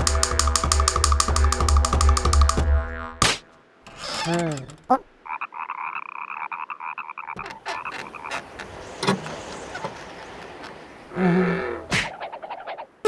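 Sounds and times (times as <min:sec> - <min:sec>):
cartoon frog croaking: 0:04.2 - 0:08.5.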